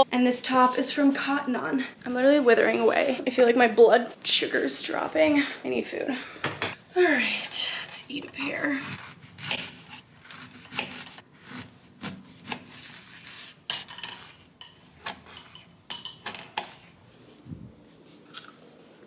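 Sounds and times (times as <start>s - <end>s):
knife scraping against a dish: 8.8s - 17.0s.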